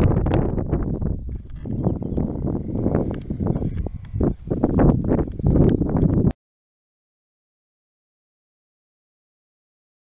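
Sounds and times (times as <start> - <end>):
wind buffeting microphone: 0.0 - 6.4.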